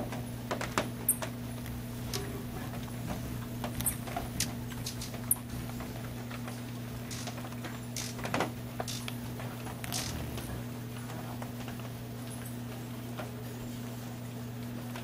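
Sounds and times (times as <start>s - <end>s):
steady low hum: 8.6s - 12.4s.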